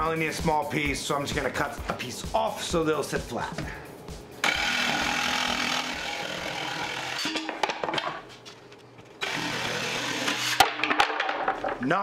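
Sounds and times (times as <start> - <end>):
jigsaw cutting plywood: 4.4 - 7.4, 9.2 - 10.7.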